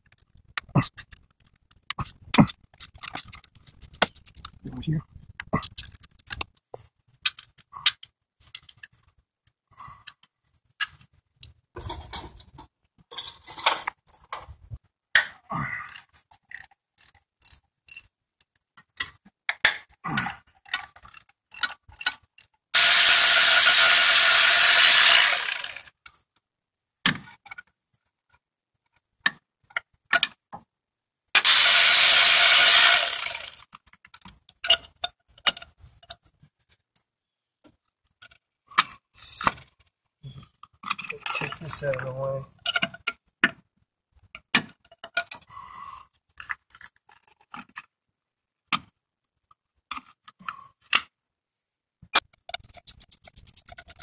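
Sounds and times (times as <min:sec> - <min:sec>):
power ratchet whirring: 0:22.8 - 0:25.9, 0:31.4 - 0:33.6.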